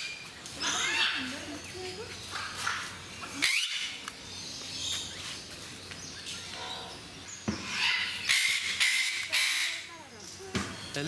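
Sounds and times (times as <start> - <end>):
parrots screeching squawks: 0.6 - 1.4, 2.3 - 4.0, 7.6 - 10.0.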